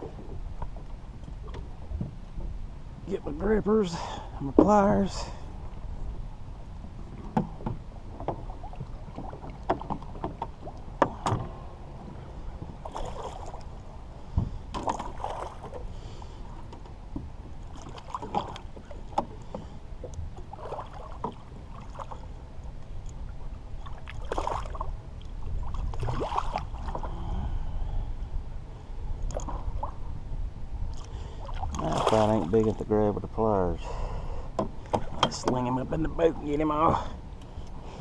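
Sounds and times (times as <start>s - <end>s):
wind rumble on microphone: 0.0s - 38.0s
water slapping against hull: 7.0s - 15.9s, 16.5s - 22.4s, 23.1s - 27.4s, 30.9s - 33.0s, 34.5s - 38.0s
knocks against boat hull: 34.6s - 35.6s.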